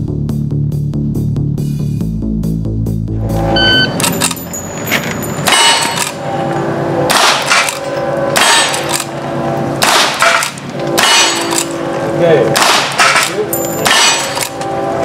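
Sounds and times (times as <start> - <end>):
steel target ringing: 3.8 - 15.0
rifle shots: 7.1 - 9.1, 9.8 - 11.7, 12.6 - 14.6.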